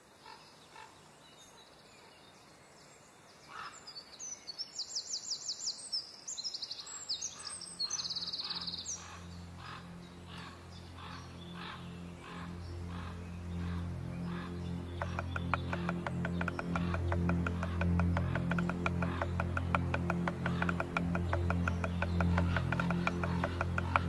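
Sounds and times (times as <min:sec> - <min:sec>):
songbird trilling: 0:06.8 - 0:24.0
low droning music: 0:07.0 - 0:24.0.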